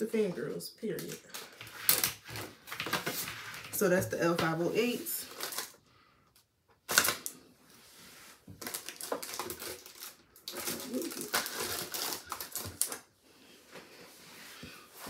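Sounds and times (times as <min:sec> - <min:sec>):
packaging rustling and clicking: 0:01.0 - 0:03.8, 0:05.3 - 0:05.8, 0:06.9 - 0:07.3, 0:08.5 - 0:13.1.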